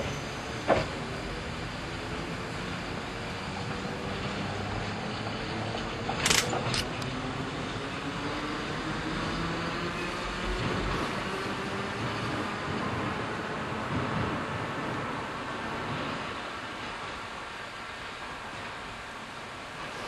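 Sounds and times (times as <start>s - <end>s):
railcar rumbling on track: 0.0s - 20.0s
sharp clicks: 6.2s - 7.1s.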